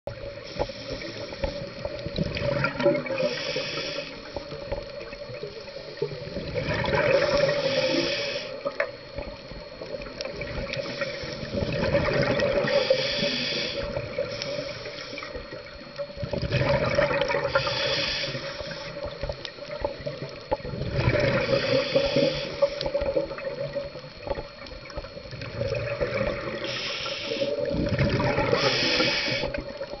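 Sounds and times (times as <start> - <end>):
scuba regulator breathing: 0.2 - 9.0, 10.4 - 20.2, 20.8 - 24.6, 25.6 - 30.0
exhaled bubbles rushing: 1.7 - 3.4, 4.8 - 7.8, 9.0 - 13.0, 15.4 - 17.8, 19.0 - 26.8, 27.4 - 30.0.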